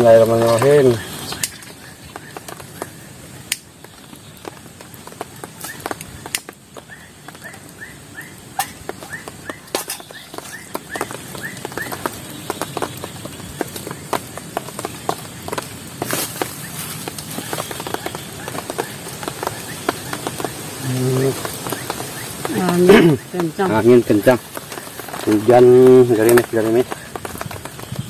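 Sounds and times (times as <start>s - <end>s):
dry twigs snapping: 0.0s - 28.0s
bird calling in repeated notes: 5.6s - 14.4s.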